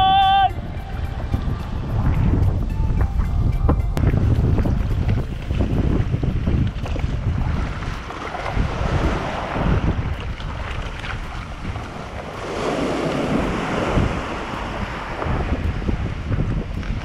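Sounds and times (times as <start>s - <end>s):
wind buffeting microphone: 0.0s - 17.0s
kayak hull scraping on sand: 4.0s - 17.0s
small waves washing: 4.0s - 17.0s.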